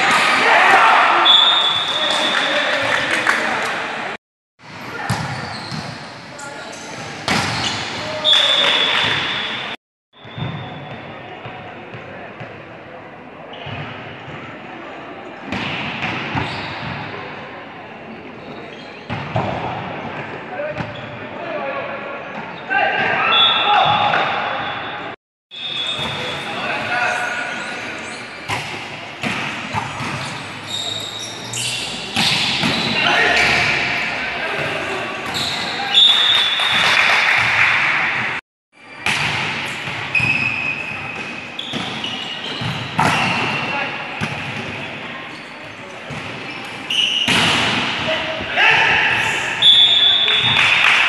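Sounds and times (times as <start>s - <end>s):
reverberant noise of players: 0.0s - 51.0s
volleyball smacks in echoing gym: 39.0s - 40.4s, 42.6s - 43.6s, 47.2s - 49.0s
volleyball hits: 47.2s - 48.1s.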